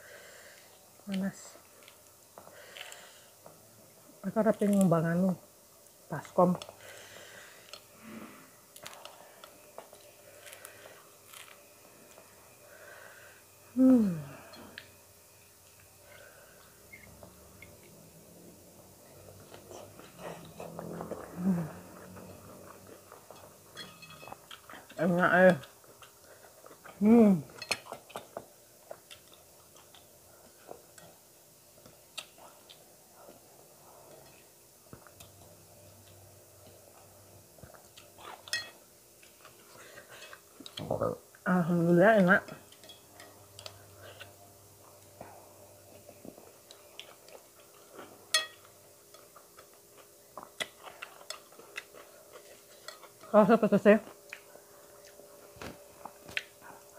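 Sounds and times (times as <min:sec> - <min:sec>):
soft chewing: 0:05.8 - 0:12.8, 0:15.6 - 0:41.4, 0:42.5 - 0:56.9
person humming: 0:13.7 - 0:14.8, 0:19.7 - 0:22.2
clink against glass plate: 0:23.8 - 0:24.3, 0:38.5 - 0:38.8, 0:48.3 - 0:48.6.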